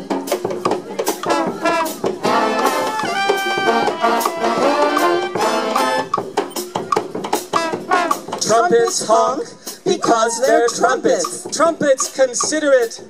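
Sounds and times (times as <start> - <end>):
sharp drum hits: 0.3 - 9.1
brass horns playing: 1.1 - 6.3, 7.4 - 8.6.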